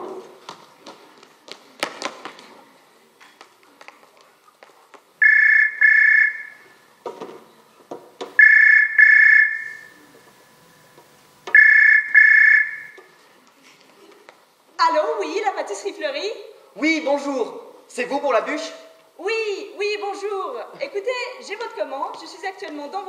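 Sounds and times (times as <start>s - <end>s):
telephone ringing: 5.2s - 6.7s, 8.4s - 9.9s, 11.6s - 13.0s.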